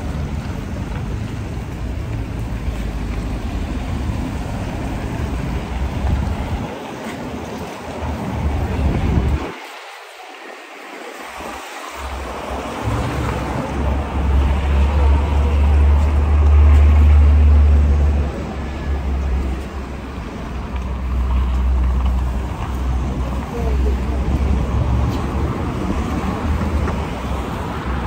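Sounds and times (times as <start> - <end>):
wind buffeting microphone: 0.0 - 16.8
city street traffic: 0.0 - 28.0.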